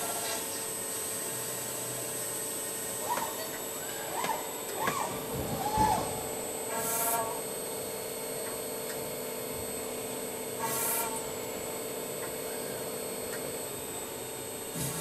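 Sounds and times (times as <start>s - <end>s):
constant machine tone: 0.0s - 15.0s
milling machine cutting metal: 10.2s - 15.0s.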